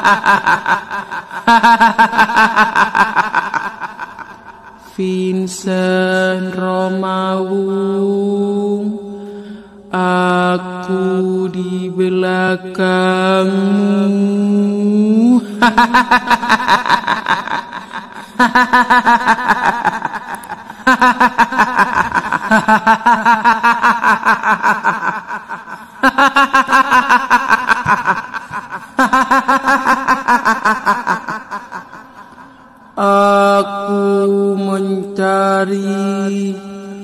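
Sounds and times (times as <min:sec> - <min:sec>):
woman's shrill cackling laugh: 0:00.0 - 0:04.7, 0:15.6 - 0:32.4.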